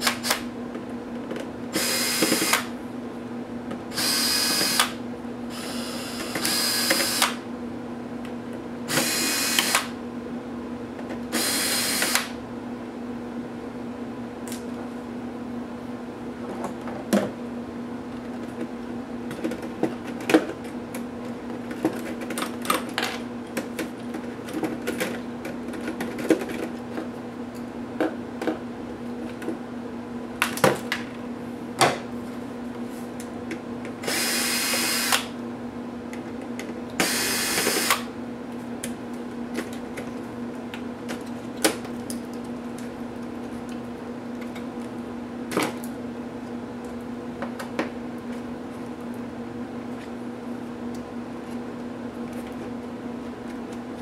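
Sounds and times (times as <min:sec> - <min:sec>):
electric screwdriver running: 0:01.8 - 0:02.7, 0:04.0 - 0:05.0, 0:05.6 - 0:07.4, 0:08.9 - 0:09.9, 0:11.4 - 0:12.3, 0:34.0 - 0:35.3, 0:37.0 - 0:38.1.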